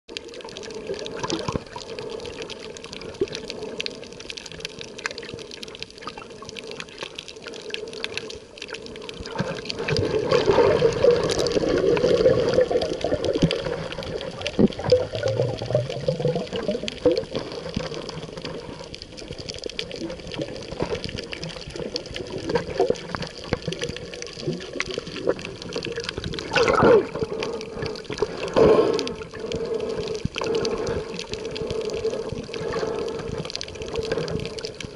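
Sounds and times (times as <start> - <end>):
muffled rush of water: 0.1 - 34.9
underwater crackle of clicks: 0.1 - 34.9.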